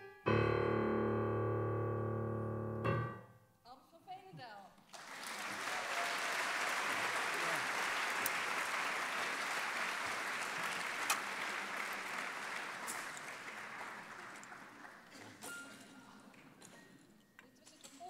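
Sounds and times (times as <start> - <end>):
audience applause: 4.8 - 15.4.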